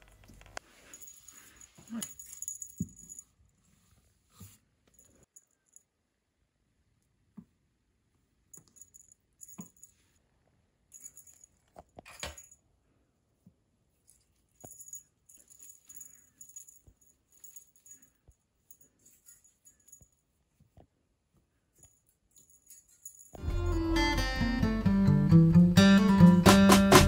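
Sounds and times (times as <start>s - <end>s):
jingly rustling of toy: 0.7s - 3.4s, 10.9s - 12.6s, 14.0s - 20.4s, 21.7s - 23.4s.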